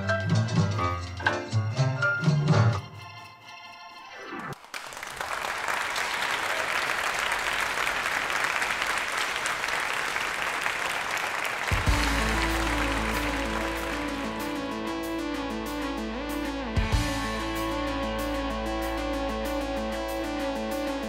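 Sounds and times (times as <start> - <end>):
audience applause: 4.5 - 14.8
guitar-led music: 11.8 - 21.0.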